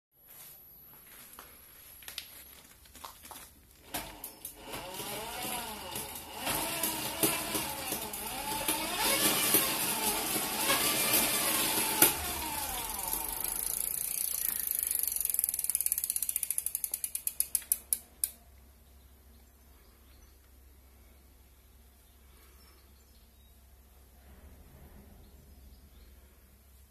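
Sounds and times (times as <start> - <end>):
electric motor whine: 3.9 - 14.8
wheel ratchet clicking: 3.9 - 18.4.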